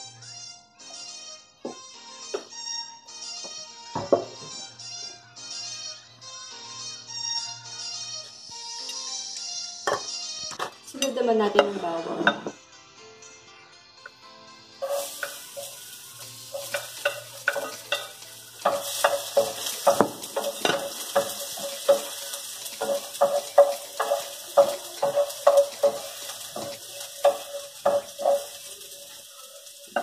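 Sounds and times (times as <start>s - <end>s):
garlic sizzling in hot oil: 14.8s - 30.0s
wooden spoon knocking against pan: 16.6s - 28.6s.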